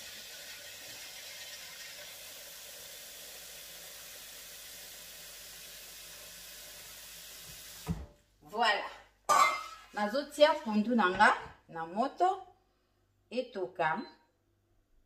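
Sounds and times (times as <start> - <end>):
tap water pouring into pot: 0.0 - 8.1.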